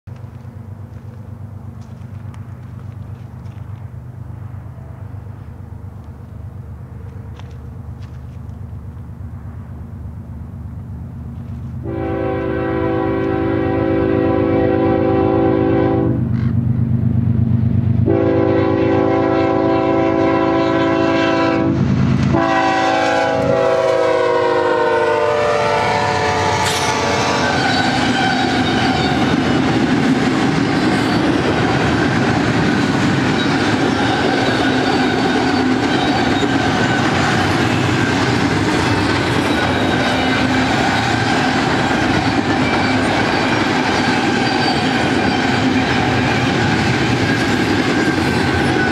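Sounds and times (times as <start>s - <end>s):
train cars rumbling on rails: 0.1s - 48.9s
locomotive air horn blasts: 11.8s - 16.2s, 18.1s - 29.4s.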